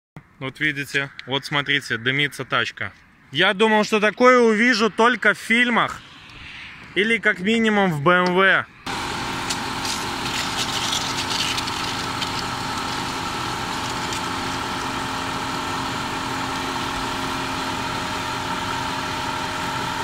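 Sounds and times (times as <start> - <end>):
car engine idling: 8.9 - 20.0.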